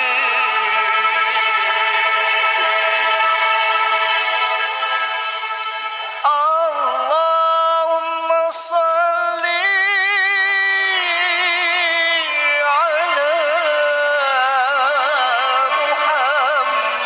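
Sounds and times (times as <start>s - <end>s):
man singing into microphone: 0.0s - 1.8s, 6.2s - 17.0s.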